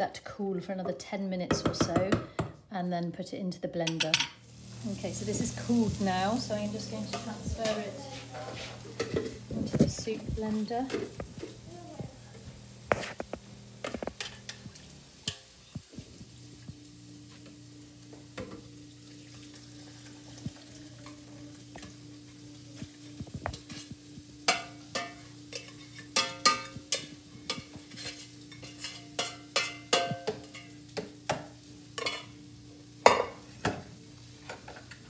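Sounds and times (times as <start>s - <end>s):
utensil scraping a pan: 6.8s - 11.6s, 12.9s - 15.4s, 23.5s - 30.8s.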